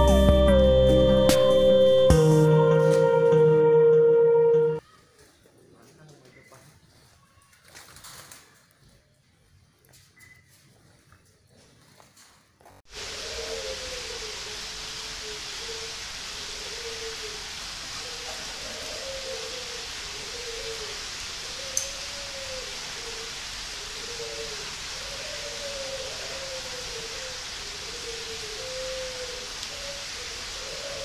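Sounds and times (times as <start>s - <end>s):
steady hiss: 12.9s - 31.0s
doves cooing: 16.5s - 31.0s.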